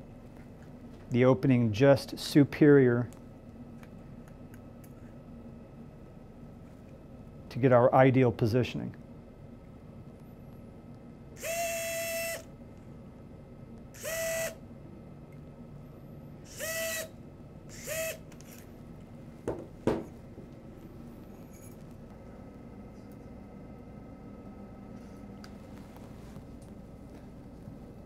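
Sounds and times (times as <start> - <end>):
surgical wire driver running: 11.4 - 12.5, 14.0 - 14.6, 16.5 - 17.1, 17.7 - 18.7.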